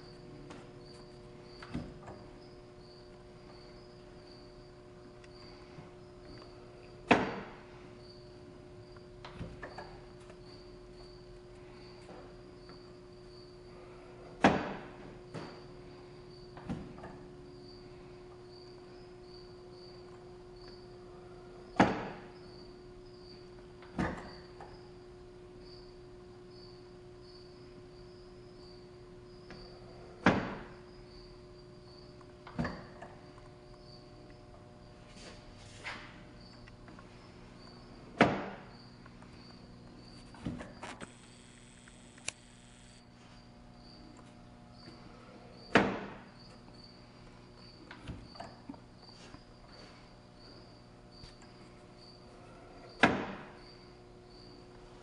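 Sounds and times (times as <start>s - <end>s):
small mechanism click: 40.8s - 43.0s.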